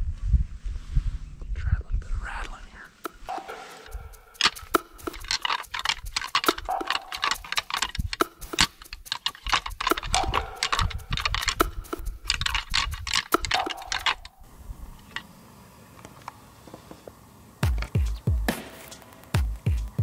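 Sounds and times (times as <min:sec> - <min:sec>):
antlers clashing and clattering: 0:03.1 - 0:14.4.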